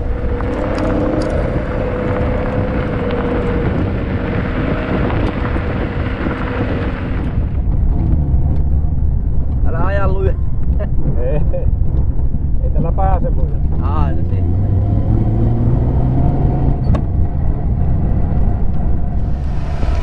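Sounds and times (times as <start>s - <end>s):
turbo whine: 0.0s - 7.7s, 18.8s - 20.0s
tyres rolling on gravel: 0.0s - 8.7s, 19.2s - 20.0s
car engine rumbling: 0.0s - 20.0s.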